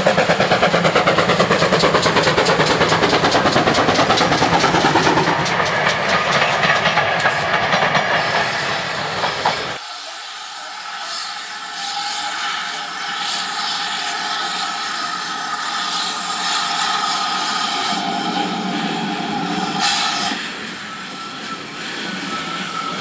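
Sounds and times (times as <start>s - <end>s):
steam locomotive running slowly: 0.0s - 23.0s
steady high whistle note: 9.8s - 23.0s.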